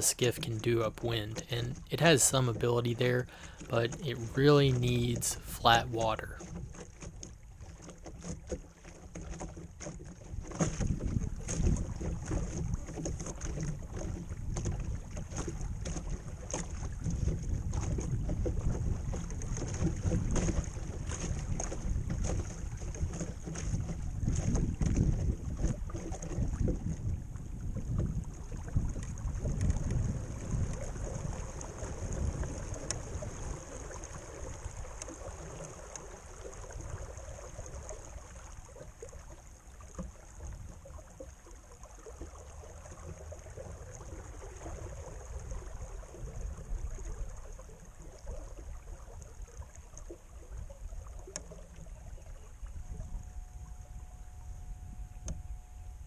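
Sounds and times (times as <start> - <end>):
water gurgling along hull: 0.0 - 56.0
wind buffeting microphone: 10.4 - 13.2, 13.8 - 34.8.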